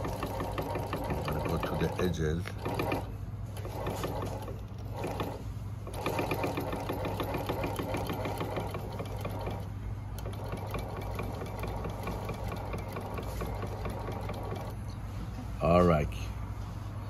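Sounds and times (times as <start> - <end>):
stitching mechanism ticking: 0.0 - 14.8
sewing machine motor hum: 0.0 - 15.8.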